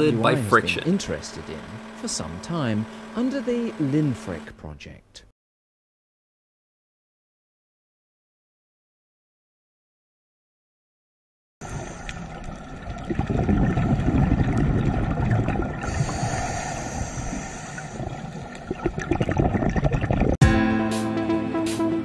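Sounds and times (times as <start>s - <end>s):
underwater rumble and gurgling: 11.6s - 20.4s
music: 20.4s - 22.0s.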